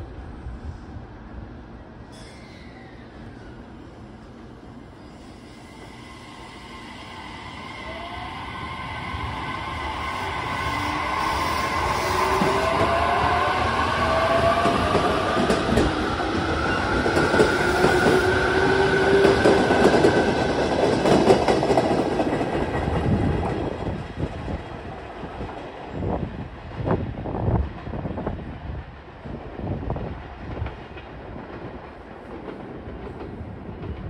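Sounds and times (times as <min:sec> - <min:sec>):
wheels clacking on rails: 0:11.7 - 0:24.5.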